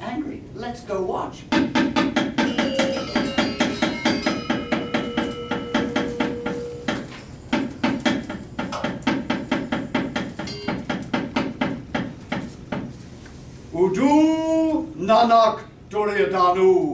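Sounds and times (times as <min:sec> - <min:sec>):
ringing tones: 0:02.4 - 0:10.9
rapid wooden knocking: 0:07.6 - 0:12.9.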